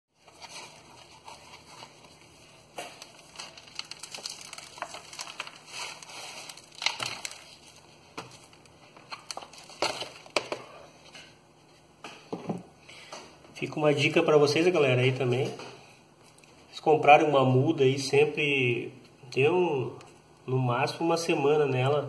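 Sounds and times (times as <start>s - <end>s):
plastic pot crackling: 0.2s - 10.3s.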